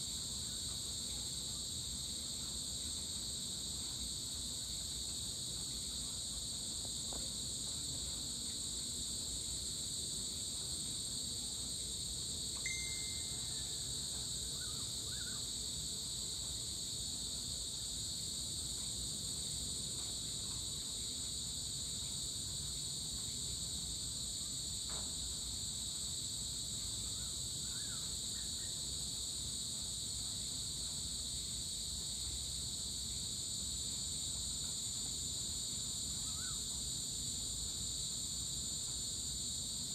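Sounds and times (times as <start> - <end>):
insects trilling: 0.0 - 39.9
faint chirps: 12.6 - 15.5, 36.2 - 36.7.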